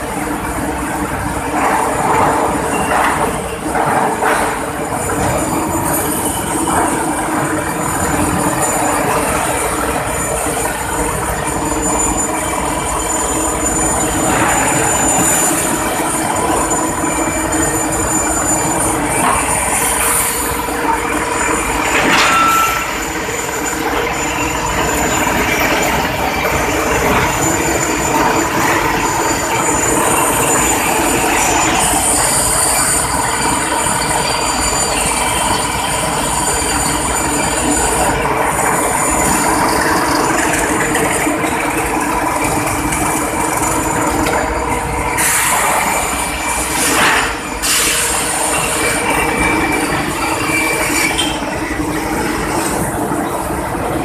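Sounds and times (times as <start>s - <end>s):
rolling mill machinery din: 0.0s - 54.0s
steady whining tones: 0.0s - 54.0s
metallic burst with squeal: 45.1s - 52.4s.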